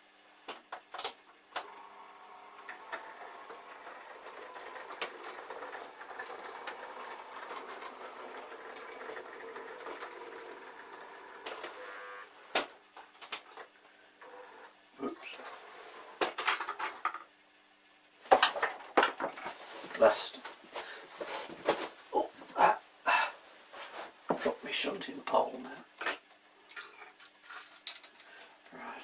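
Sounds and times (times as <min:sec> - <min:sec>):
model train motor whirring: 0:01.6 - 0:12.3.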